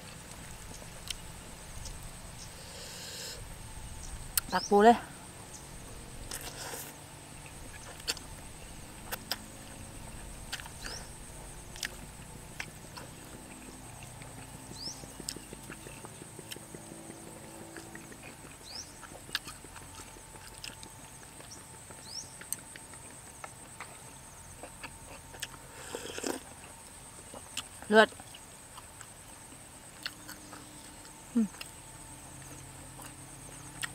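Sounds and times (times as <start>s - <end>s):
high-pitched insect hum: 0.0s - 33.9s.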